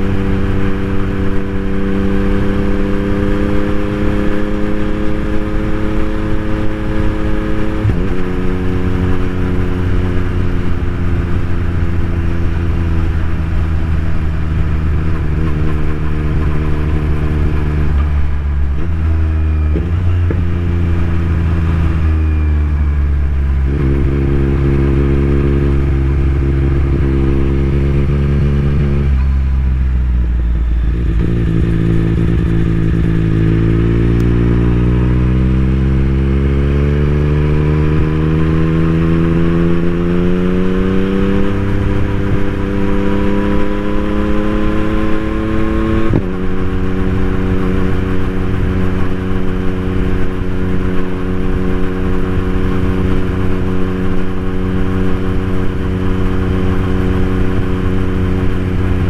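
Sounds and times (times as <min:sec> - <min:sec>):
motorcycle engine while riding: 0:00.0 - 0:59.0.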